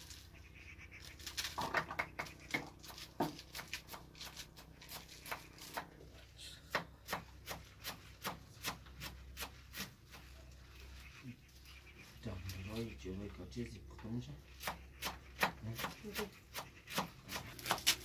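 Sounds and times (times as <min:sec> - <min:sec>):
leaves rustling: 0:00.0 - 0:06.4, 0:07.6 - 0:13.5, 0:15.6 - 0:18.0
stalks snapping: 0:14.6 - 0:18.0.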